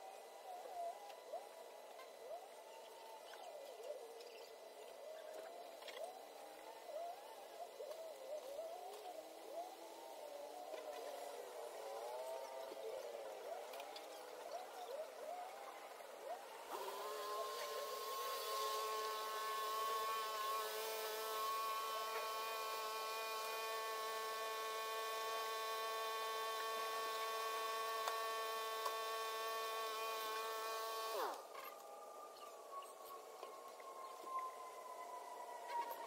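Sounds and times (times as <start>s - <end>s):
motor-driven machine running: 3.1s - 31.6s.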